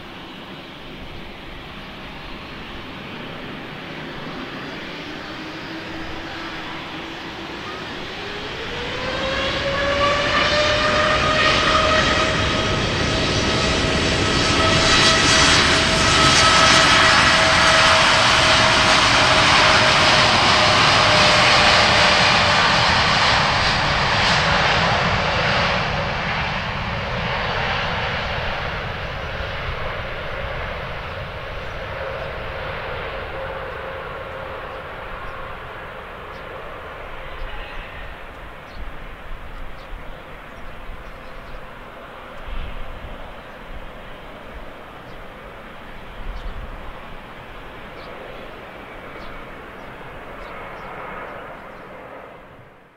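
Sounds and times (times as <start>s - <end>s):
jet engines spooling up: 0.0s - 39.5s
broad jet rush: 0.0s - 52.9s
jet engine whine: 0.0s - 52.9s.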